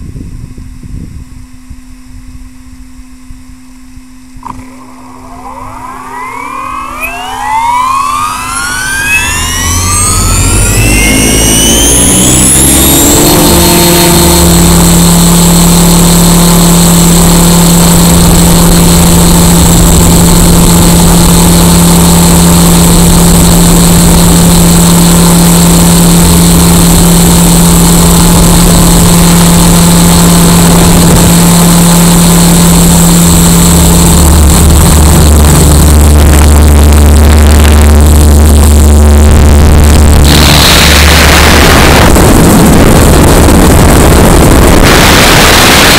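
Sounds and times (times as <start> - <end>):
rc helicopter rotor whine: 4.5 - 45.9
low wind rumble: 34.5 - 45.9.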